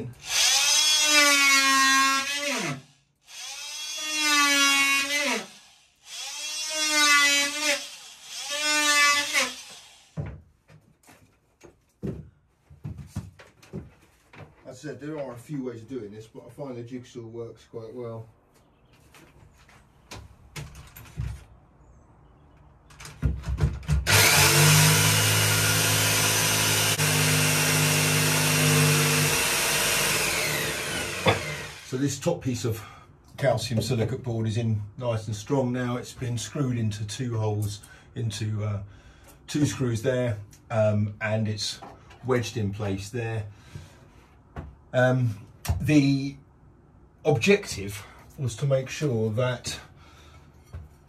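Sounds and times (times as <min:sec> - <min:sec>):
cordless drill whining: 0:00.2 - 0:10.2, 0:24.0 - 0:32.0
electric jigsaw cutting board: 0:00.2 - 0:10.3, 0:24.0 - 0:31.9.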